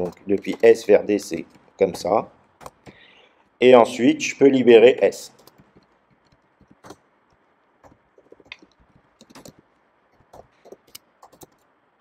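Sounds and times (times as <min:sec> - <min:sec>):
typing on computer keyboard: 0:00.0 - 0:03.0, 0:05.4 - 0:07.0, 0:07.8 - 0:09.6, 0:10.2 - 0:11.7.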